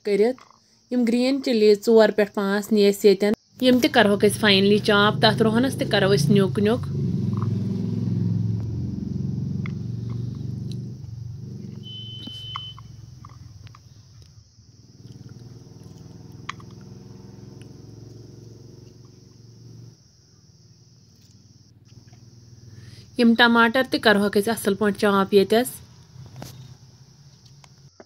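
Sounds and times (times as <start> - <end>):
low steady rumble: 3.9 - 23.3
short high beep: 11.8 - 12.9.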